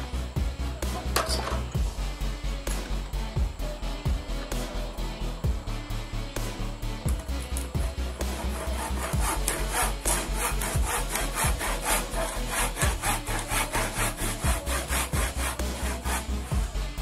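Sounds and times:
hand saw cutting wood: 0.9 - 1.8, 7.3 - 16.8.

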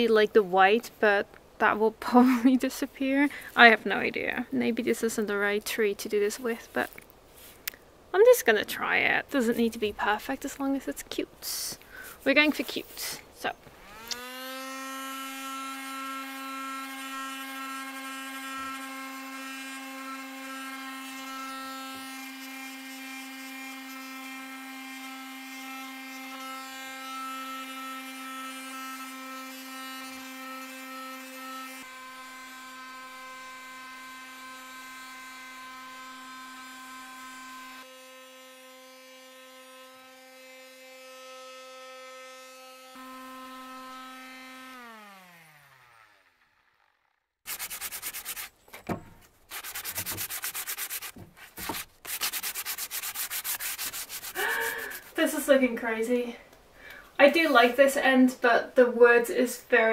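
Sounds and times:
electric sander motor hum: 13.7 - 47.2.

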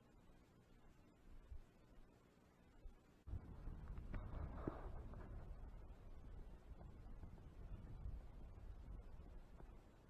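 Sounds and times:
low rumbling noise: 3.3 - 10.0.

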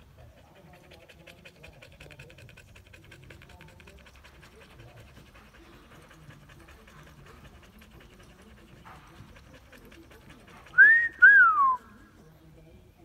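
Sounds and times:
person wolf whistling: 10.8 - 11.9.

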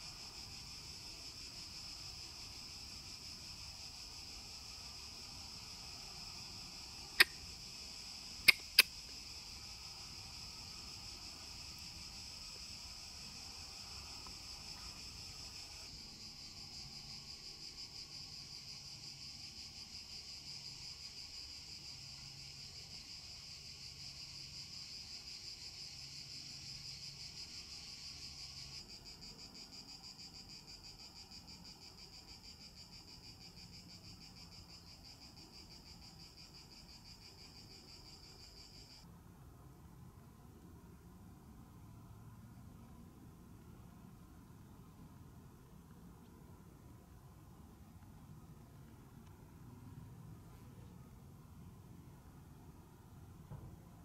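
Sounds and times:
cicadas buzzing: 0.0 - 39.1
sharp clicks: 8.5 - 8.9.

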